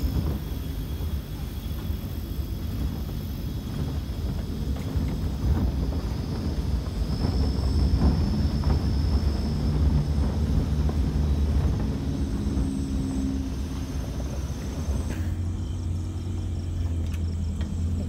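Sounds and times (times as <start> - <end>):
rattle and crunch of dirt track: 0.0 - 18.0
vehicle engine rumble: 0.0 - 18.0.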